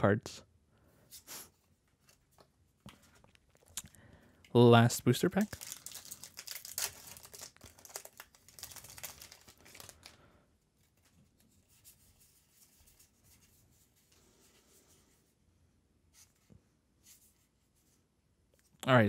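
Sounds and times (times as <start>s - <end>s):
foil wrapper crinkling and tearing: 5.4s - 10.2s.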